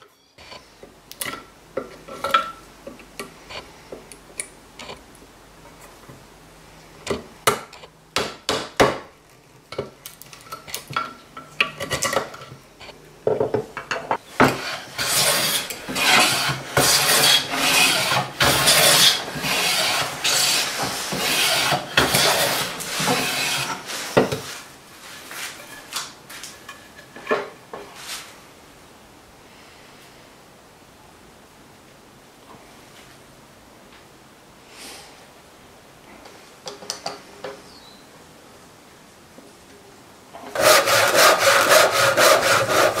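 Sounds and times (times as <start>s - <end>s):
hand plane shearing strokes: 14.4s - 26.4s, 40.5s - 43.0s.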